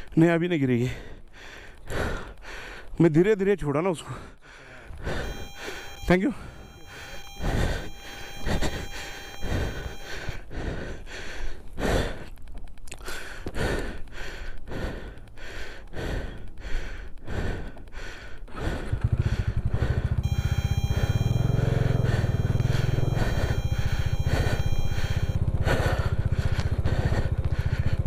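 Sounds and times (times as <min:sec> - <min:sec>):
motorcycle engine throbbing: 0:04.9 - 0:11.1, 0:16.0 - 0:28.0.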